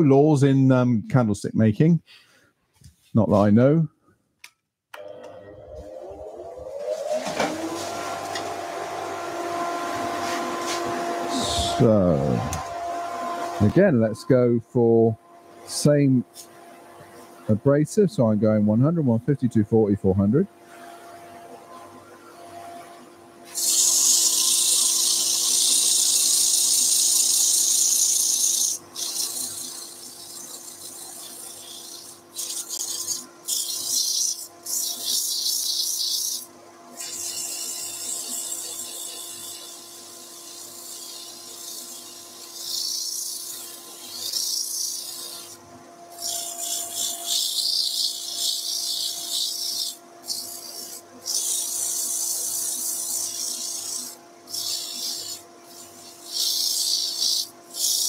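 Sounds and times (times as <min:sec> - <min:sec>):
machine hum: 0:05.0 - 0:23.4
sandpaper rasping on spinning wood: 0:09.7 - 0:13.9, 0:23.5 - 0:58.0.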